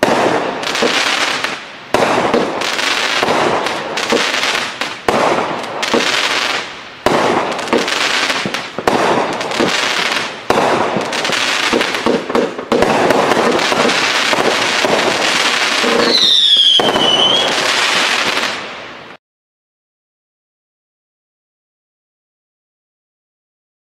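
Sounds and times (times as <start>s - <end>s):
fireworks launching and bursting: 0.0s - 19.2s
firework whistle sliding down: 15.8s - 17.8s.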